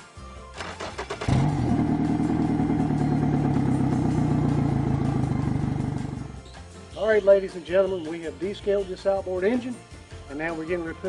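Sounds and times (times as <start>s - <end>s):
outboard motor starter cranking: 0.6s - 5.9s
outboard motor idling: 1.3s - 6.4s.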